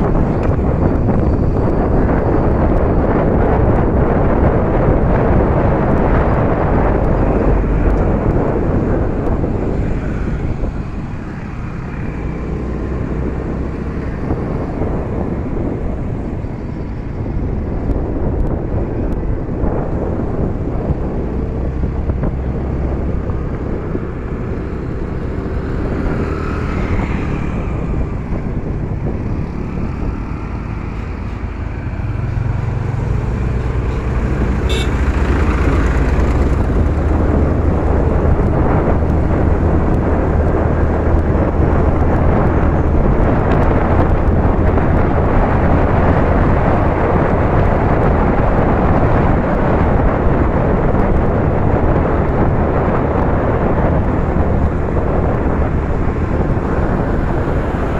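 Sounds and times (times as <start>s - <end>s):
surrounding traffic: 0.0s - 57.9s
tractor low rumble: 0.0s - 57.9s
wind rushing over microphone: 0.0s - 57.9s
scooter engine running: 33.4s - 37.9s.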